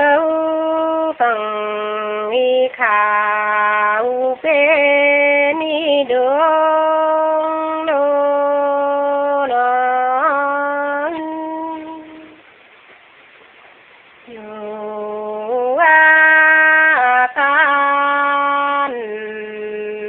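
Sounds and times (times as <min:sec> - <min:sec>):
person singing folk song: 0:00.0 - 0:12.4, 0:14.2 - 0:20.0.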